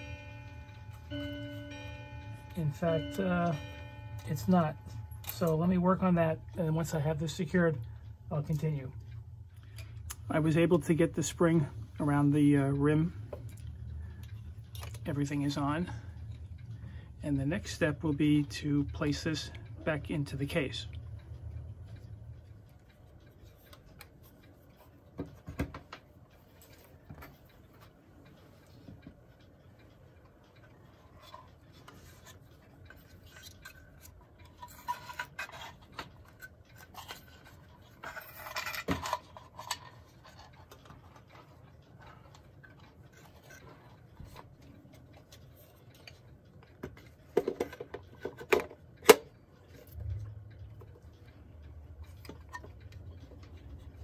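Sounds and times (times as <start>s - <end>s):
steady low hum: 0.0s - 54.0s
clock parts scraping: 30.9s - 48.8s.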